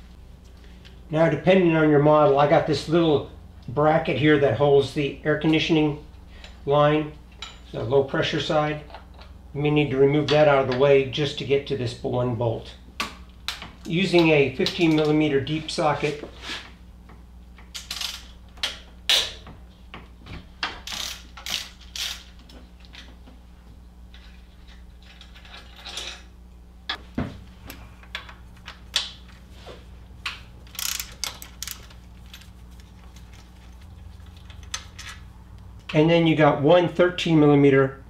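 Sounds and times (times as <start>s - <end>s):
socket ratchet clicking: 30.3s - 32.0s.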